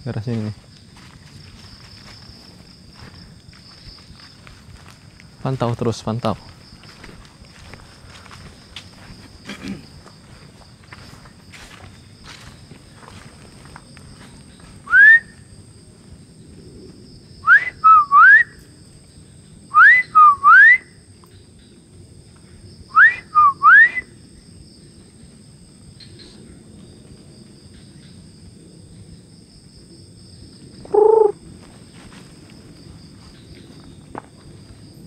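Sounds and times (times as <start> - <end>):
person whistling: 14.9 - 15.4, 17.4 - 18.5, 19.8 - 20.8, 22.9 - 24.1, 30.9 - 31.3.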